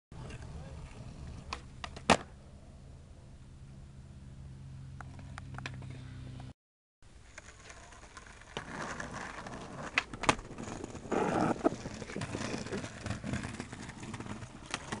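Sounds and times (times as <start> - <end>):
skateboard wheels rolling on bricks: 7.2 - 15.0
skateboard clacking on ground: 7.3 - 15.0.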